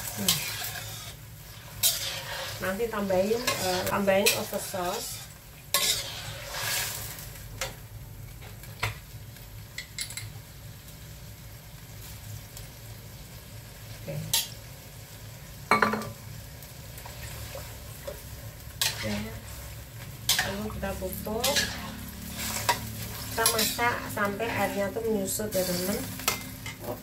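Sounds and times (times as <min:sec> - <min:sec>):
metal ladle scraping a wok: 0:00.0 - 0:07.2, 0:18.8 - 0:26.8.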